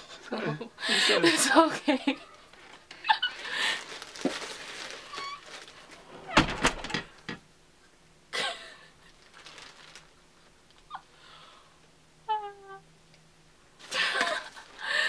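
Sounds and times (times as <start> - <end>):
quiet laughter: 13.8 - 15.0.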